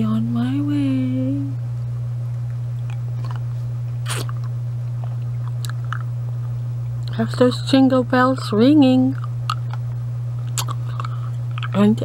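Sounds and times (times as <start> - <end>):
low electrical hum: 0.0 - 12.0
lollipop sucking and licking: 4.0 - 4.4.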